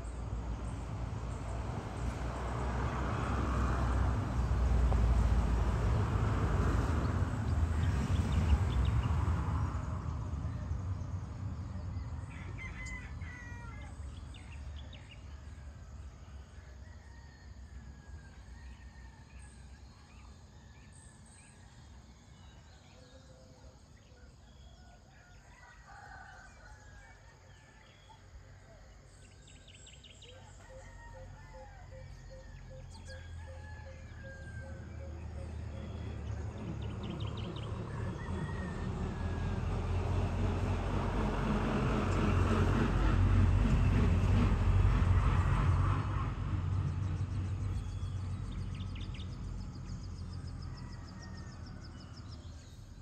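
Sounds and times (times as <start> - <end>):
vehicle engine rumble: 0.0 - 13.2, 32.8 - 53.0
rooster crowing: 12.1 - 14.1, 24.8 - 28.3, 30.2 - 39.9, 49.9 - 52.4.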